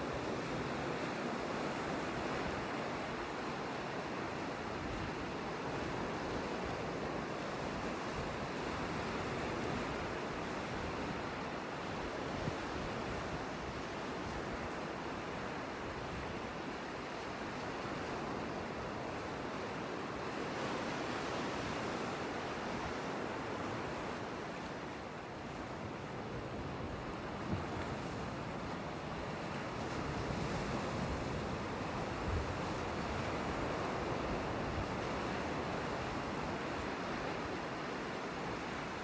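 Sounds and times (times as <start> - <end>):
sea waves washing onto shore: 0.0 - 39.0
wind: 0.0 - 39.0
wind noise on microphone: 25.5 - 39.0.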